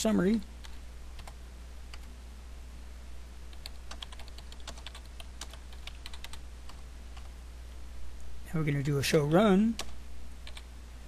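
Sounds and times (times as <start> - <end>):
steady low hum: 0.0 - 11.0
computer keyboard typing: 0.6 - 2.1, 3.5 - 7.3, 9.7 - 10.7.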